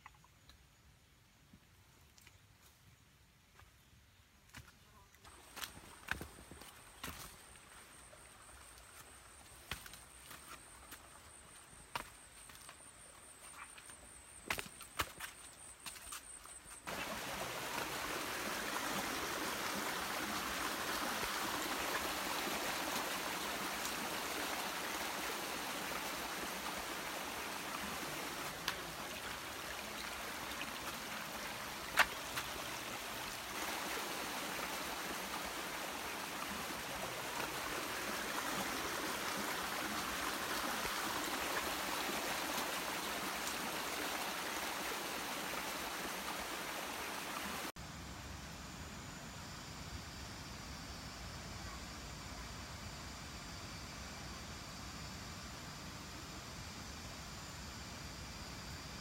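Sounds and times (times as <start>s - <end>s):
stream babbling over stones: 16.9s - 47.7s.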